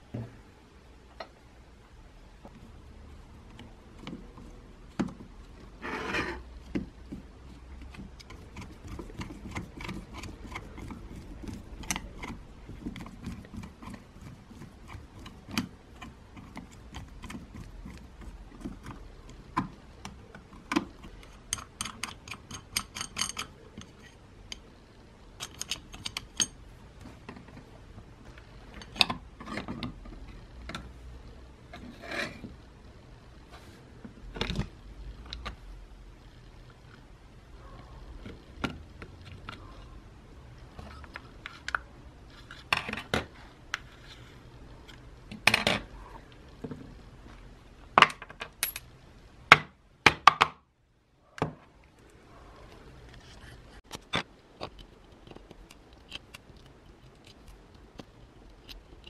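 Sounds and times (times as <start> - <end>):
screwdriver clicking and scraping: 7.8 - 19.4, 25.4 - 26.6.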